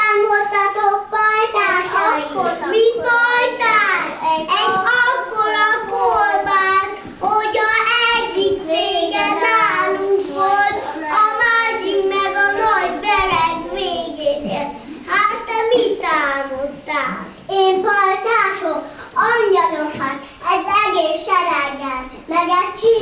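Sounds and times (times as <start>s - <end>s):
children singing: 0.0s - 16.5s.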